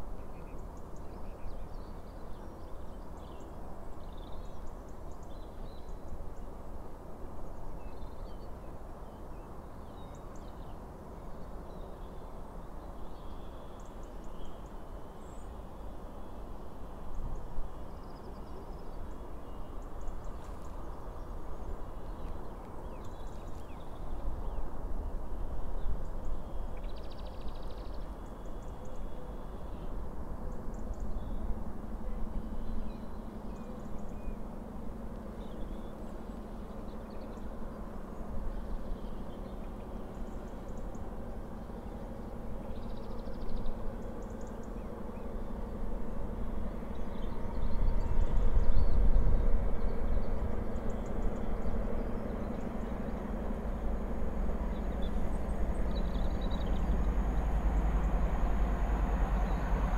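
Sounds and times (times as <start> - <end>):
low steady hum: 0.0 - 59.9
steady low rumble: 15.3 - 59.9.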